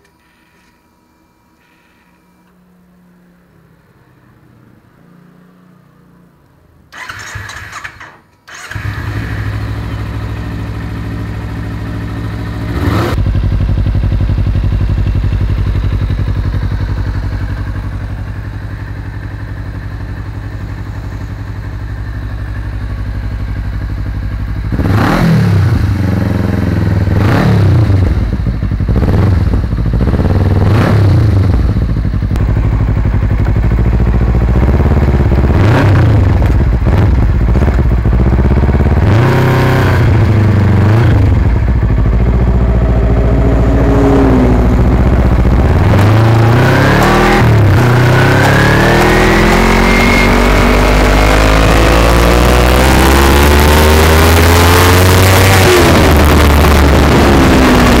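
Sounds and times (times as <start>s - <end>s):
motorcycle engine idling: 8.5s - 24.8s, 27.8s - 39.1s, 40.1s - 46.2s
engine revving in throttle blips: 12.2s - 13.5s, 24.7s - 32.8s, 33.4s - 58.0s.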